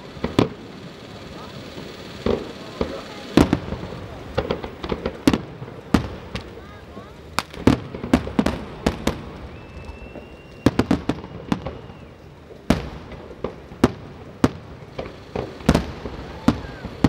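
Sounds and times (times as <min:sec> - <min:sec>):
firework shells bursting: 0:00.0 - 0:17.0
faint high whistle: 0:09.4 - 0:12.2.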